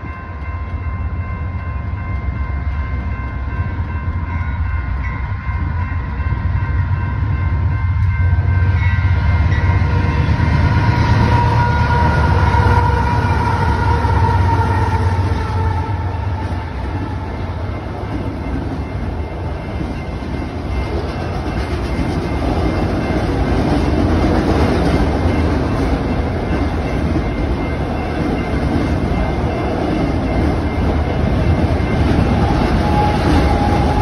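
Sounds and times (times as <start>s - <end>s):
diesel locomotives rumbling: 0.0s - 34.0s
train horn chord: 8.0s - 18.0s, 32.3s - 34.0s
freight cars rolling past: 8.3s - 34.0s.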